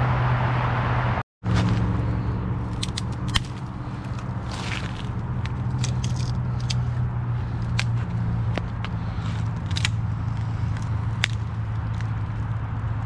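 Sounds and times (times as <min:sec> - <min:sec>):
highway traffic drone: 0:00.0 - 0:13.0
dry branches snapping: 0:02.6 - 0:13.0.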